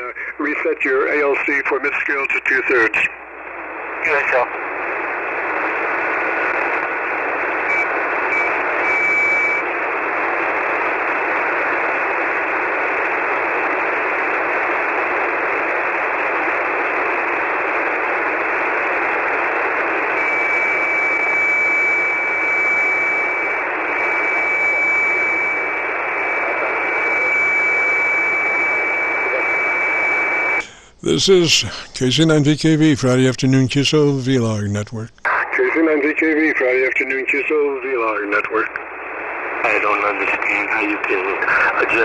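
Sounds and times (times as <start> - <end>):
radio static hiss: 0.0 - 42.0
steady high whistle: 8.3 - 9.6.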